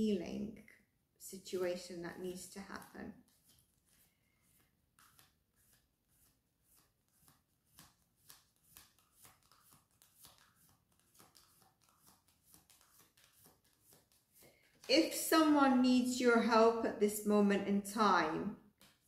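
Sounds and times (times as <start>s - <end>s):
cards shuffling: 1.7s - 15.2s, 18.8s - 19.0s.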